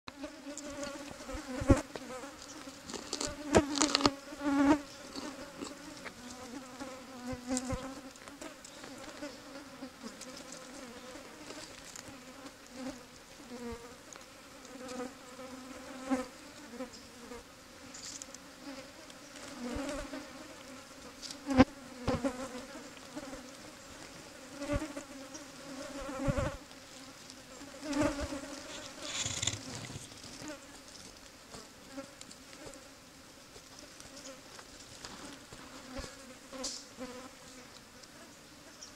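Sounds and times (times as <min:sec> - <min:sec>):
flying insect buzzing: 0:00.1 - 0:33.0, 0:35.1 - 0:38.9.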